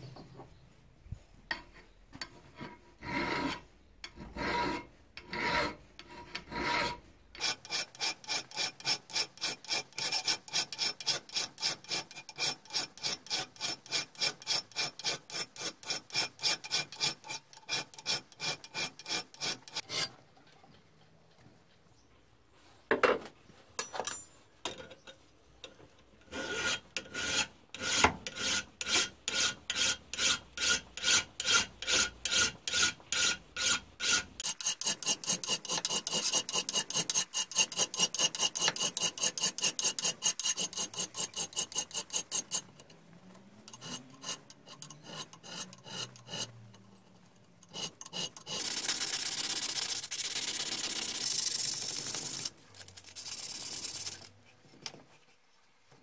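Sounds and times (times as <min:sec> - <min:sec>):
file rasping on metal: 0:02.6 - 0:20.2, 0:26.2 - 0:43.0, 0:43.6 - 0:46.9, 0:47.6 - 0:49.3.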